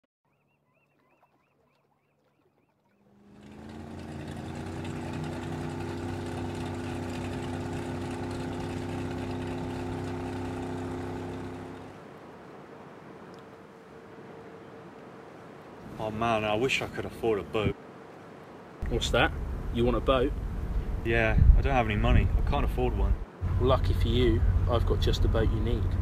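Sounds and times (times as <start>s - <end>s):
boat engines droning: 2.8s - 26.0s
water hissing: 3.1s - 12.0s.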